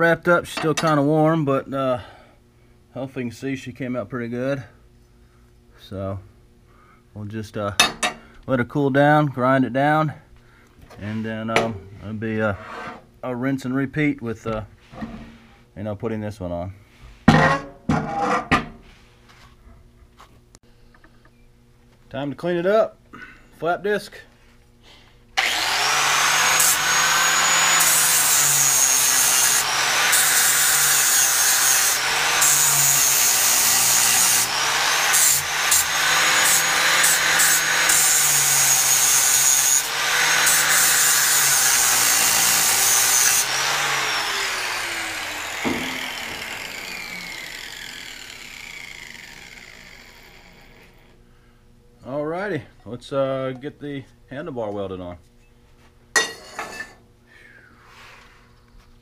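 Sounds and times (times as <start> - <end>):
angle grinder grinding metal: 25.4 - 51.2
grinder knock: 43.0 - 47.6.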